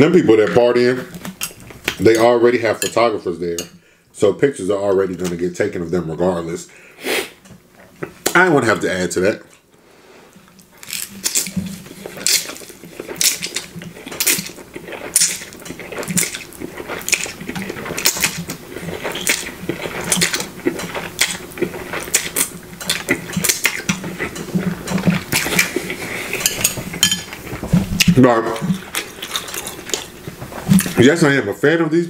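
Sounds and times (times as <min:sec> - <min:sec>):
noodles slurped and chewed: 0:10.4 - 0:31.0.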